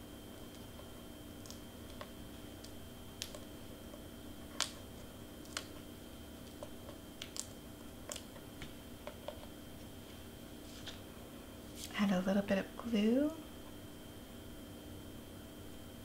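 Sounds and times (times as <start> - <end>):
faint clicks and crinkles of cardstock: 0.4 - 5.8, 10.7 - 11.0.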